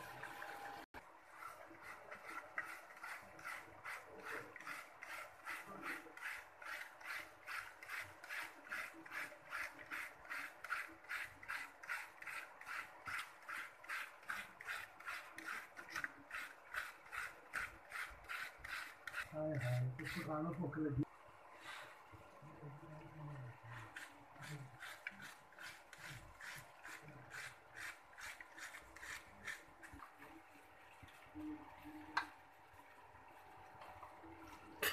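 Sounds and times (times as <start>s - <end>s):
cabbage being shredded: 1.3s - 20.5s.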